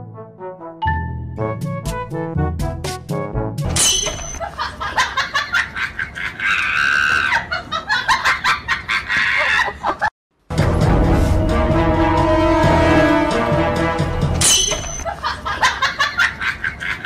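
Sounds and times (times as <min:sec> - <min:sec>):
laughter in short bursts: 0:04.4 - 0:10.1.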